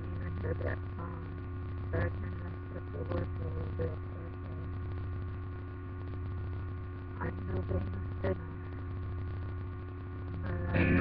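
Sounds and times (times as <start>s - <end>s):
electrical mains hum: 0.0s - 11.0s
faint voice-like sounds: 10.3s - 11.0s.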